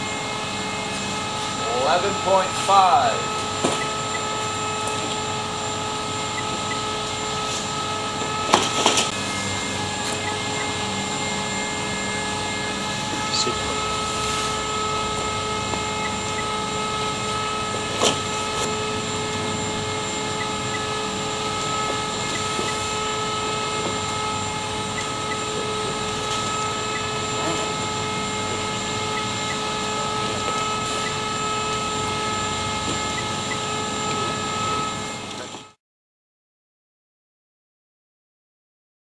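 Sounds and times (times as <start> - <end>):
conveyor motors whirring: 0.0 - 35.8
steady whining tones: 0.0 - 35.8.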